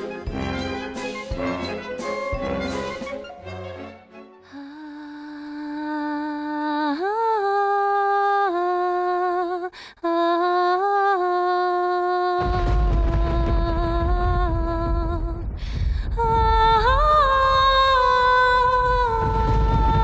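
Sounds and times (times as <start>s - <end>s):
woman singing wordless melody: 4.4s - 20.0s
low rumbling noise: 12.4s - 20.0s.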